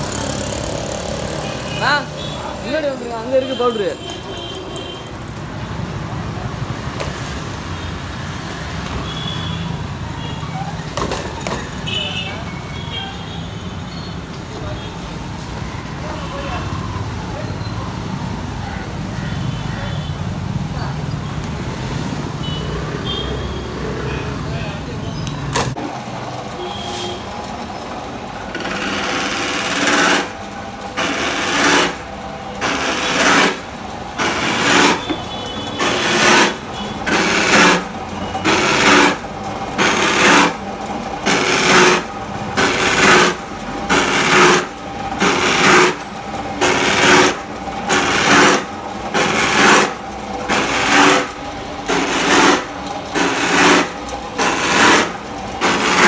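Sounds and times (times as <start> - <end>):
electric motor running: 0.0 - 3.0, 28.5 - 32.0
blade rasping into pipe: 35.7 - 37.9, 41.3 - 46.0, 46.6 - 56.0.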